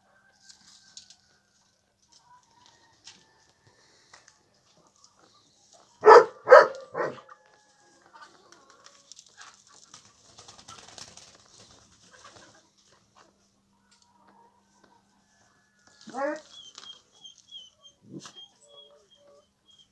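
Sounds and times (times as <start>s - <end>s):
dog barking: 6.0s - 7.4s, 16.1s - 16.4s.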